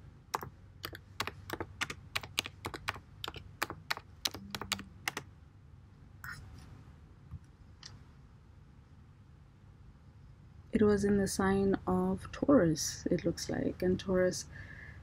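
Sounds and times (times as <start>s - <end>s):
typing on computer keyboard: 0.4s - 5.2s.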